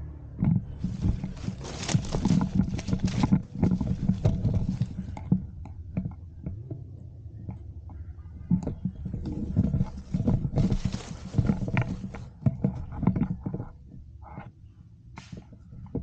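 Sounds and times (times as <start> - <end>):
footsteps crunching through dry leaves: 0.8 - 4.8.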